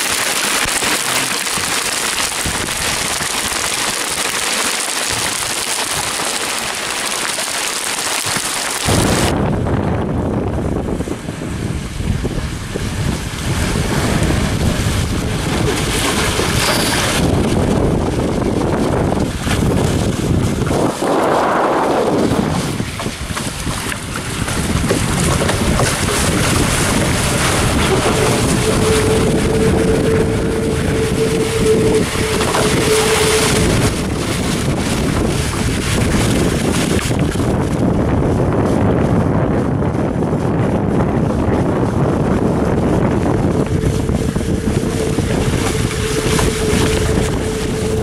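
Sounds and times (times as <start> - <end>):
water rushing along hulls: 0.0 - 48.0
wind buffeting microphone: 0.9 - 4.4, 8.8 - 48.0
steady humming tone: 27.0 - 35.4, 42.3 - 48.0.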